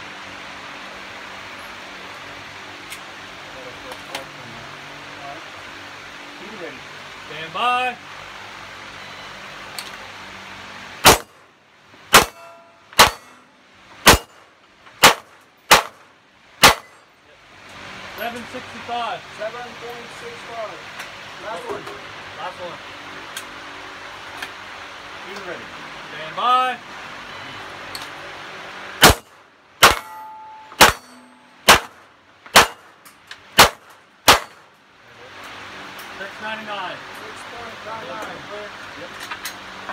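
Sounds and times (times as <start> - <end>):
pistol shots with echo: 11.0 - 11.3, 12.1 - 13.4, 14.0 - 14.4, 15.0 - 16.0, 16.6 - 16.9, 29.0 - 30.2, 30.8 - 32.0, 32.6 - 32.9, 33.6 - 34.6
bullets clanging on steel plate: 12.2 - 13.5, 29.8 - 31.6.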